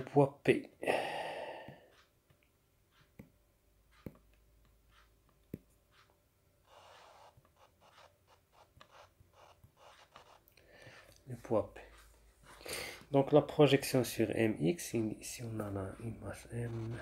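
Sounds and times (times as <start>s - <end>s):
stylus tapping tablet screen: 1.4s - 17.0s
stylus scratching a line: 4.9s - 5.2s, 5.9s - 17.0s.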